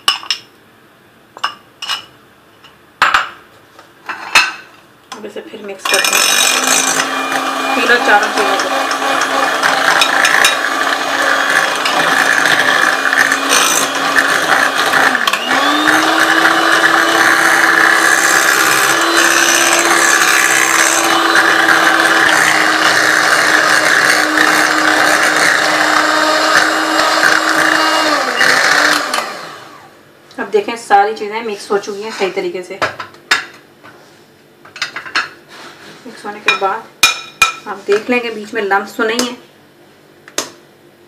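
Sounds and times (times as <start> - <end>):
electric hand mixer whining: 5.9 - 30.0.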